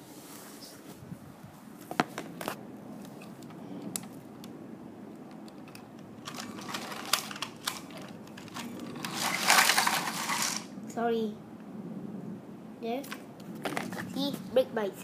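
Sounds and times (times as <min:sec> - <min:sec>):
plastic clicks and clatter: 0:05.2 - 0:10.7
toy train whirring: 0:05.7 - 0:10.7.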